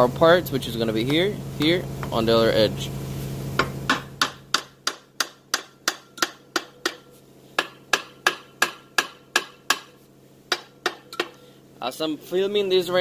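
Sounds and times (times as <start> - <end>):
hammer striking engine housing: 3.6 - 9.9.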